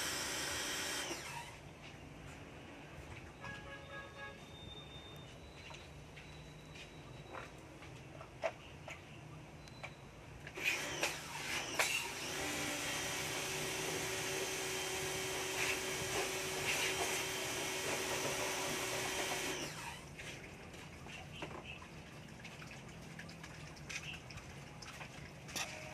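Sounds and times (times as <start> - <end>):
water jet hissing: 0.0 - 1.5
pressure washer pump whine: 0.0 - 1.6, 10.6 - 20.1.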